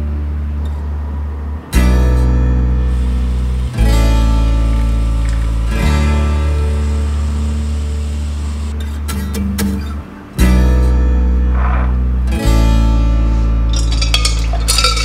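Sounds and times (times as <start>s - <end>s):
strummed acoustic guitar chords: 1.8s - 8.0s.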